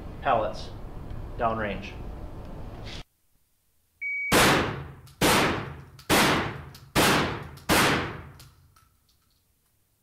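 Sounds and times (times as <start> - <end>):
shotgun blasts echoing: 4.4 - 8.4.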